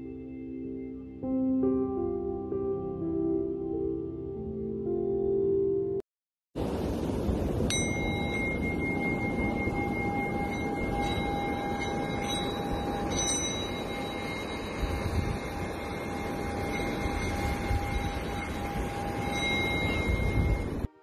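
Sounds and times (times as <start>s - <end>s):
wind gusting on microphone: 6.6s - 20.9s
metal singing bowl ringing: 7.6s - 21.0s.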